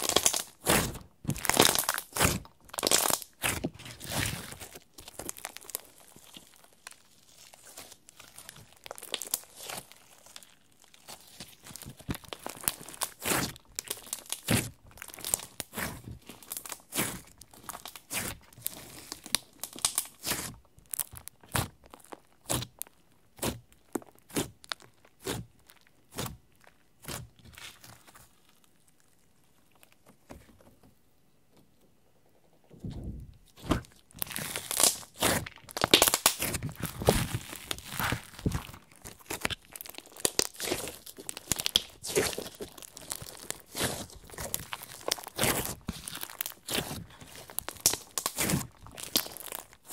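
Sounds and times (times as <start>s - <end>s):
slime clicking and popping: 0.0s - 4.2s, 11.7s - 26.4s, 33.6s - 49.8s.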